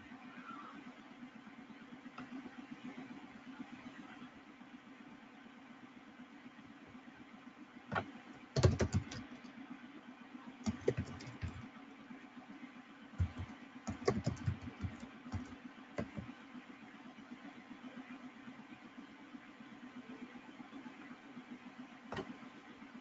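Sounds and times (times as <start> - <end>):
keyboard typing clicks: 7.9 - 9.5, 10.7 - 11.6, 13.2 - 16.3.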